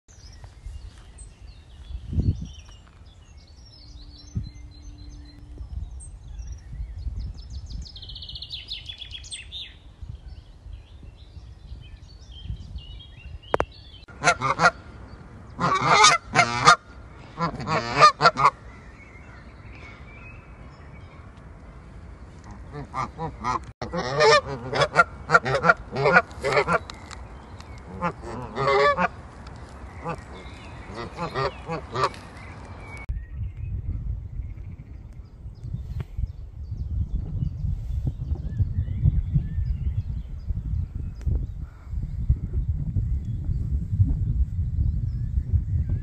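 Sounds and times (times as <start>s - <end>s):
small birds chirping: 0.1s - 14.1s, 25.2s - 46.0s
goose honking: 14.1s - 14.8s, 15.6s - 18.6s, 22.4s - 26.8s, 27.9s - 29.2s, 30.0s - 32.3s.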